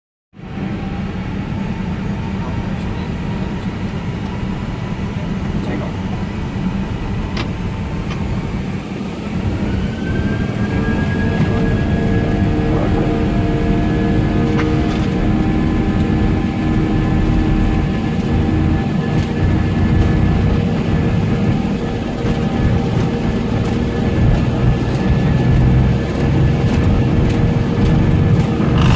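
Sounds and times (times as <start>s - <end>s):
jet engines spooling up: 0.4s - 28.9s.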